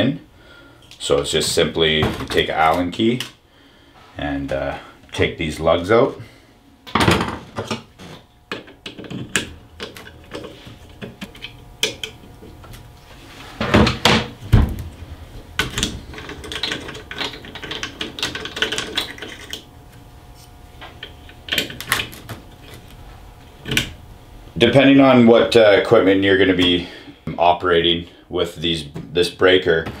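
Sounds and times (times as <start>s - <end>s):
clicks taps and knocks of hand work: 8.5s - 12.2s.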